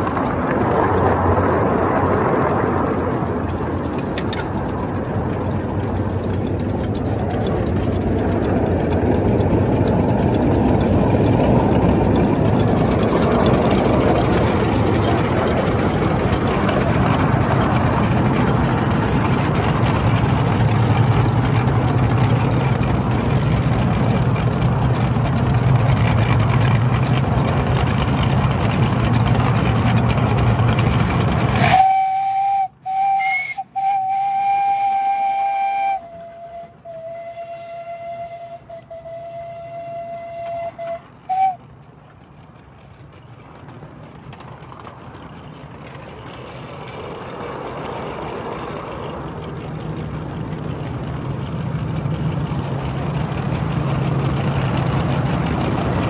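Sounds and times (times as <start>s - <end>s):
miniature steam locomotive rumbling: 0.0s - 56.0s
steam whistle blowing: 31.6s - 41.6s.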